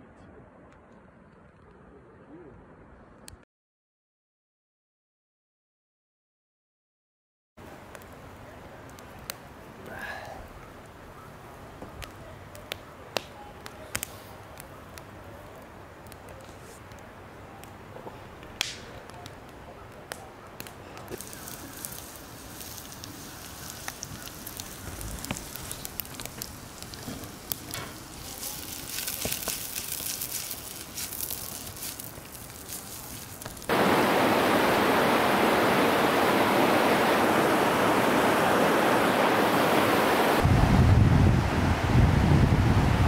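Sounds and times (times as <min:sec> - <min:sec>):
campfire crackling and popping: 0:07.6 - 0:41.4
wind buffeting microphone: 0:33.6 - 0:43.0
river rapids rushing: 0:33.7 - 0:40.5.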